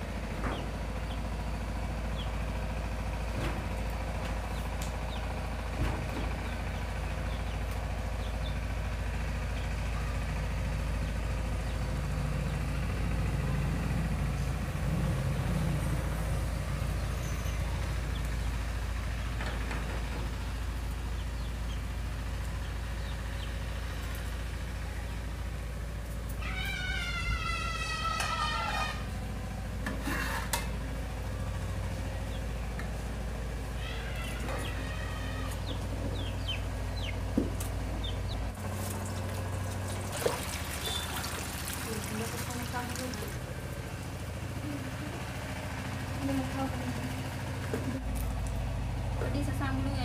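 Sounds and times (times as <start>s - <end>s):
low background rumble: 0.0s - 50.0s
cat meowing: 26.4s - 29.0s.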